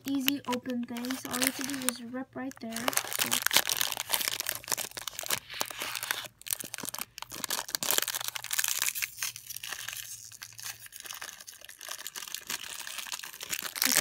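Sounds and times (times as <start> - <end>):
wrapper ripping and crinkling: 0.0 - 14.0.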